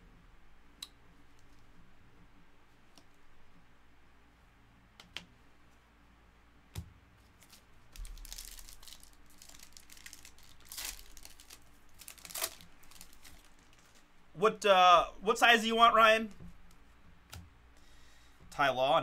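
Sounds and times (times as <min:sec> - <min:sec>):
foil wrapper crinkling and tearing: 0:07.4 - 0:14.0.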